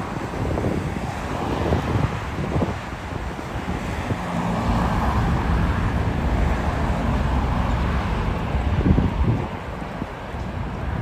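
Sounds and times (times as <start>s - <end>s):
passing cars: 0.0s - 11.0s
vehicle engine humming: 0.0s - 11.0s.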